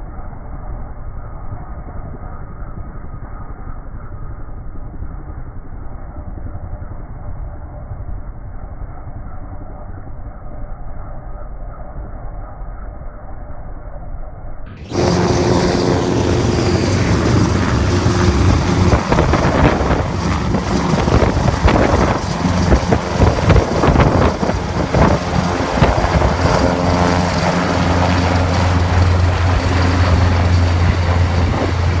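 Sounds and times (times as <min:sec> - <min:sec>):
helicopter rotor hum and chop: 0:14.8 - 0:32.0
helicopter turbine whine: 0:14.8 - 0:32.0.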